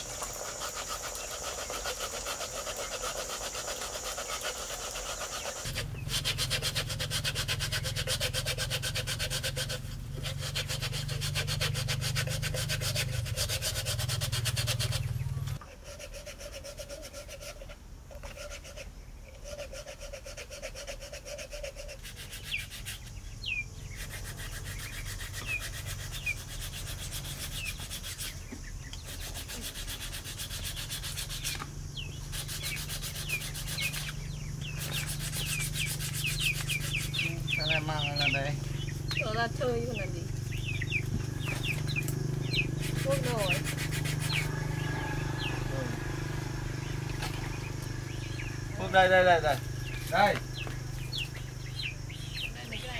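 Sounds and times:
bamboo being sanded: 0.0s - 38.5s, 39.1s - 52.9s
small birds chirping: 0.0s - 52.9s
low hum: 31.7s - 52.6s.

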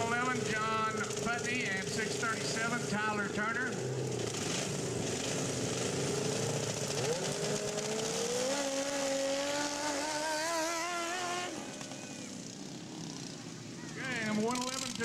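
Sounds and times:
lawnmower engines racing: 0.0s - 15.0s.

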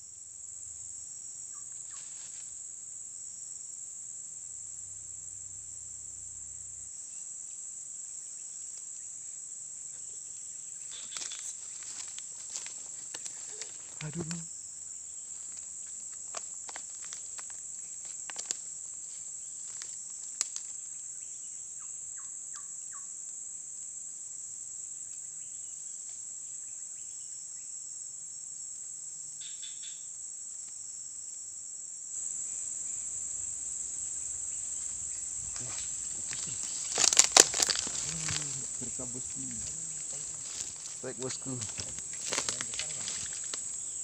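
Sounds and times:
high-pitched insect drone: 0.0s - 23.1s, 32.2s - 44.0s.

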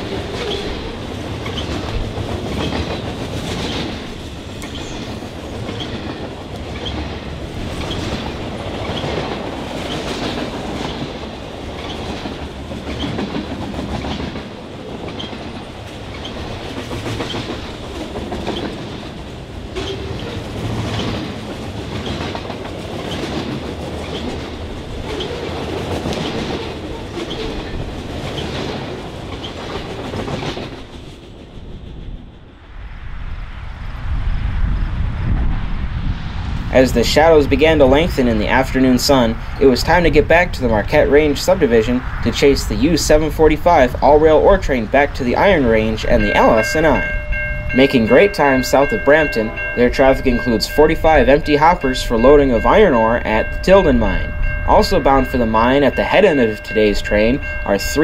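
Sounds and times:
train wheels clicking over rails: 0.0s - 32.5s.

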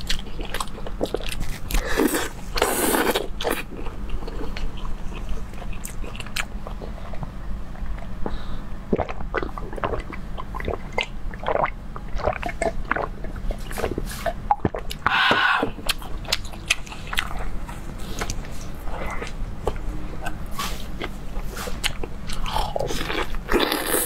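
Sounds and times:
chewing and biting food: 0.0s - 8.2s, 8.9s - 24.0s
gulping and swallowing juice: 8.8s - 24.0s.

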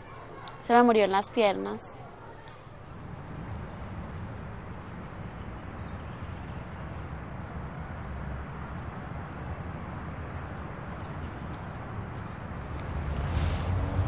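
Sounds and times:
low rumble: 12.6s - 14.0s.

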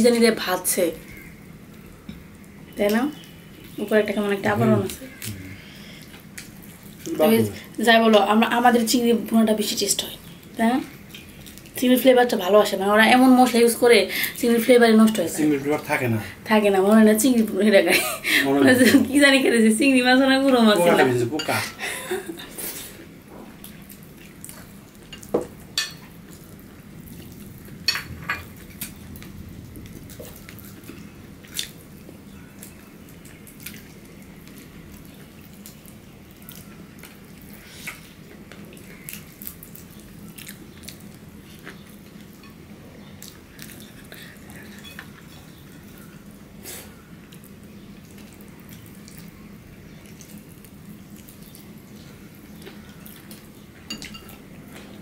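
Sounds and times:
steady low hum: 0.0s - 11.8s, 21.1s - 55.0s
chewing and lip smacking: 28.6s - 46.3s, 46.9s - 53.6s.

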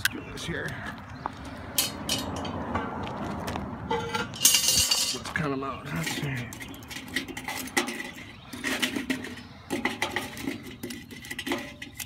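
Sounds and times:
charcoal briquettes clinking: 4.3s - 12.0s.

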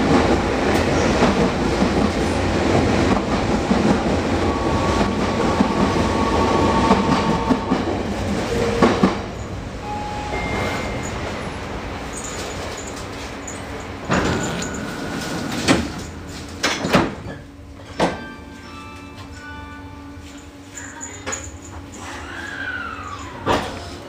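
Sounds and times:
train wheels clattering on rails: 0.0s - 9.6s, 10.3s - 19.5s.

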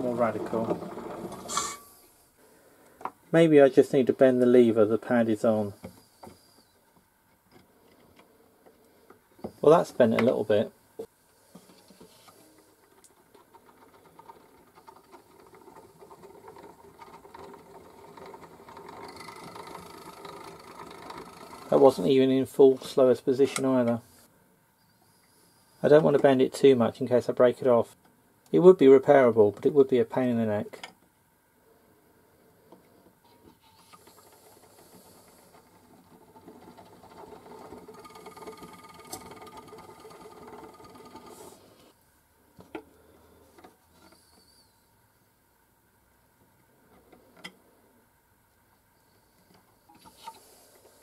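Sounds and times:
gramophone motor whirring: 14.0s - 22.0s, 33.5s - 41.9s.

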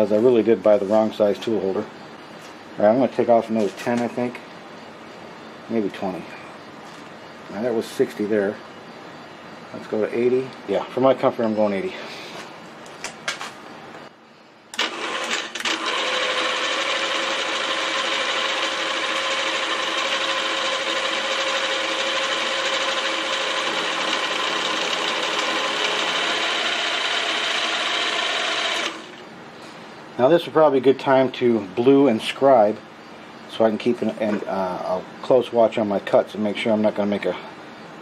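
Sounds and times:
end mill cutting metal: 14.7s - 29.3s.

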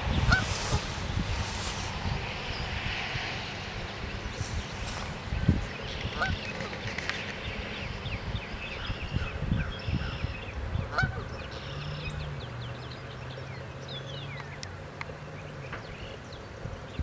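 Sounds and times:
flock of birds calling: 0.0s - 2.6s, 4.0s - 12.2s.

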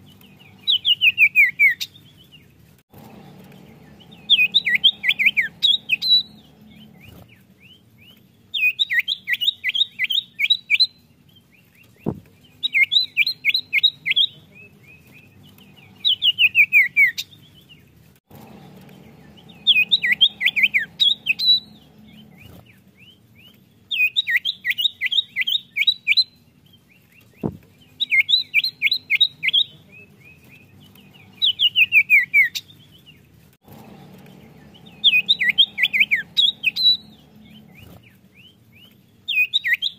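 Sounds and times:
bird singing high sharp notes: 3.1s - 7.8s, 12.0s - 17.4s, 18.4s - 22.6s, 27.8s - 32.7s, 33.7s - 38.6s.

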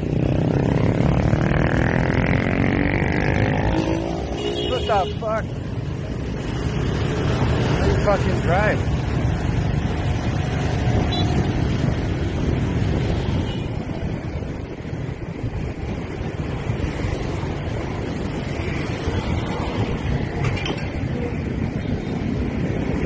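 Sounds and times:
wind rumbling on microphone: 5.8s - 23.0s.

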